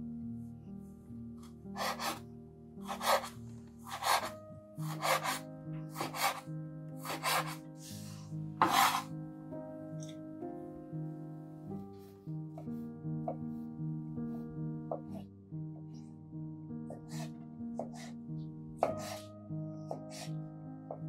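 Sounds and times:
soft background music: 0:00.0 - 0:21.0
knife chopping on cutting board: 0:08.6 - 0:09.1, 0:18.8 - 0:19.2.

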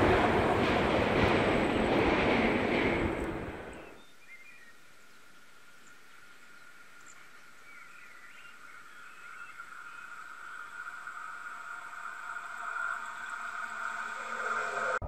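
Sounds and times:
train rumbling past: 0:00.0 - 0:04.1, 0:09.7 - 0:15.0
bird chirps: 0:03.7 - 0:04.8.

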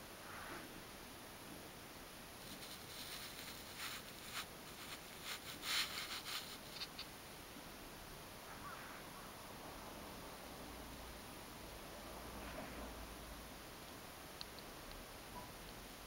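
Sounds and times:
low steady hiss: 0:00.0 - 0:16.0
scratchy rustling: 0:02.4 - 0:07.1.

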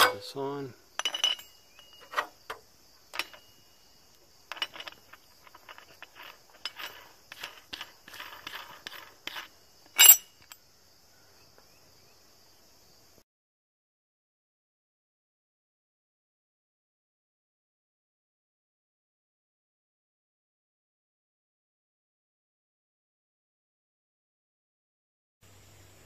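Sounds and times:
metal washer and nut clinking: 0:00.0 - 0:10.6
faint high insect drone: 0:00.1 - 0:13.2, 0:25.4 - 0:26.0.

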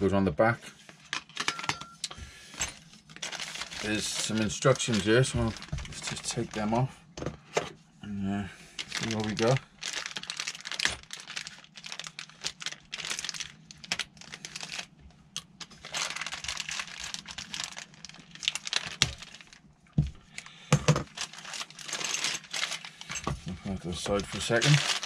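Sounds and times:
plastic packaging crinkling and tearing: 0:03.0 - 0:06.8, 0:08.8 - 0:19.7, 0:21.0 - 0:25.0.

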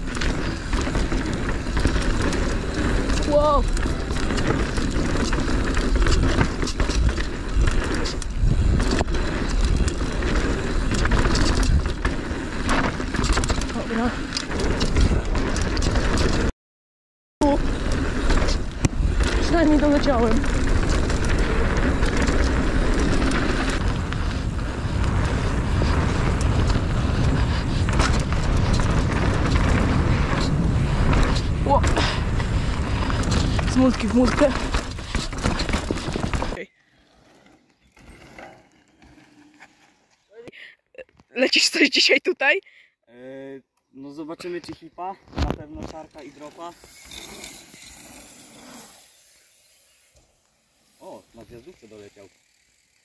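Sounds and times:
bike rattling and knocking: 0:00.0 - 0:16.5, 0:17.4 - 0:36.6, 0:45.6 - 0:48.8
bike tyres rolling over dirt: 0:00.0 - 0:16.5, 0:17.4 - 0:40.4, 0:44.2 - 0:53.0
wind rumbling on microphone: 0:00.0 - 0:16.5, 0:17.4 - 0:36.6.

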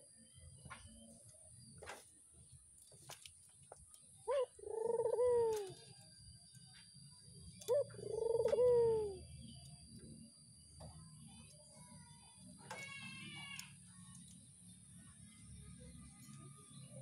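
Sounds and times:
dove cooing: 0:04.2 - 0:06.0, 0:07.5 - 0:09.6.

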